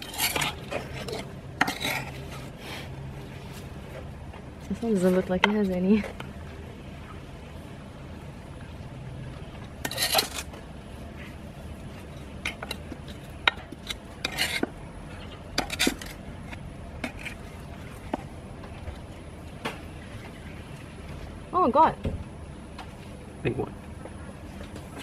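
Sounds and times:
trowel scraping soil: 0.0s - 2.5s, 9.8s - 10.5s, 13.9s - 14.7s, 15.6s - 16.2s.

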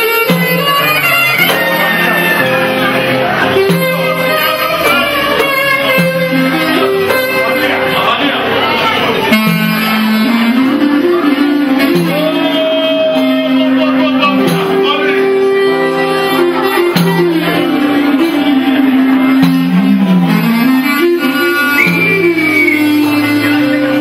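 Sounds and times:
clarinet melody: 0.0s - 24.0s
lute accompaniment: 0.0s - 24.0s.

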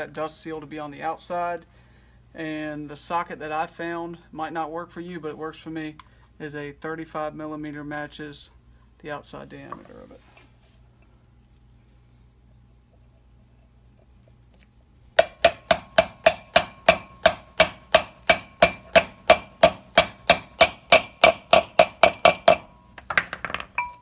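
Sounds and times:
light metal clinks: 11.3s - 11.9s, 22.4s - 24.0s
hammer striking metal socket: 15.2s - 22.8s.

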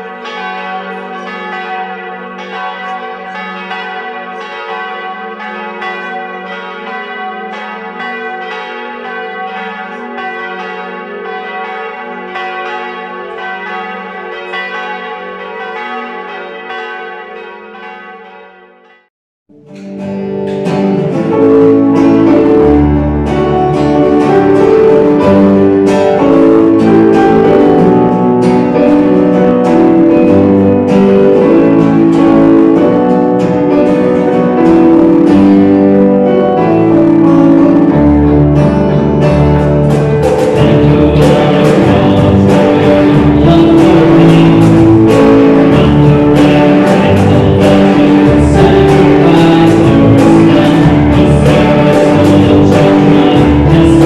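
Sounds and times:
church bells pealing: 0.0s - 19.1s, 19.8s - 54.0s
band with guitars and bass: 19.6s - 54.0s.

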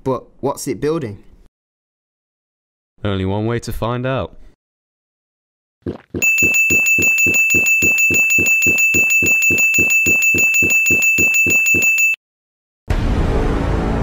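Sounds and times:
high ringing tone: 6.2s - 12.2s.

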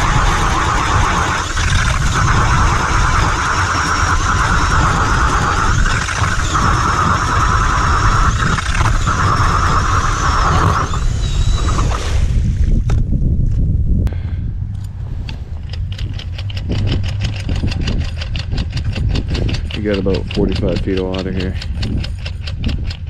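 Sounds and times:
cordless drill motor whine: 0.0s - 12.3s
low rumble: 0.0s - 20.6s.

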